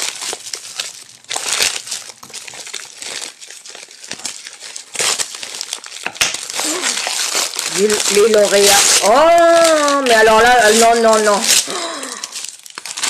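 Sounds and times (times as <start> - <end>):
plastic wrapping crinkling: 0.0 - 13.0.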